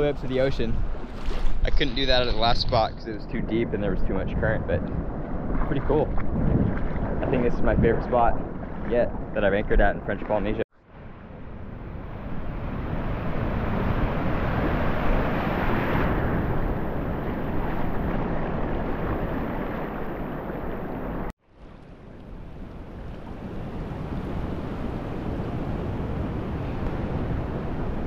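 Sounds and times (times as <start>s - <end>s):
ocean surf breaking: 11.2s - 21.3s, 22.3s - 28.0s.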